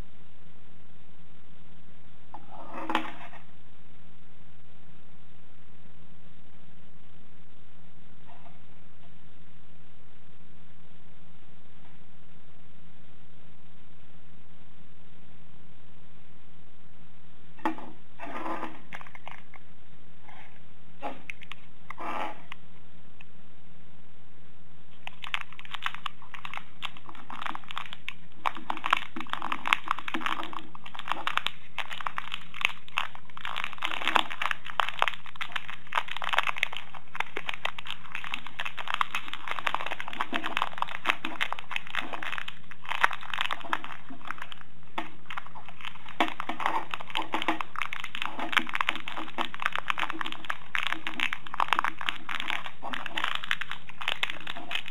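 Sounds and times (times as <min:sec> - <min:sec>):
steady low hum: 0:00.0 - 0:54.9
plastic packaging crinkling: 0:18.3 - 0:19.6, 0:21.0 - 0:21.7, 0:25.0 - 0:54.9.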